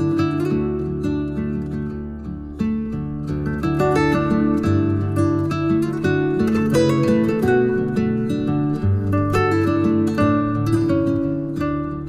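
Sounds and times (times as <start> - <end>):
acoustic guitar plucked notes: 0.0 - 12.0.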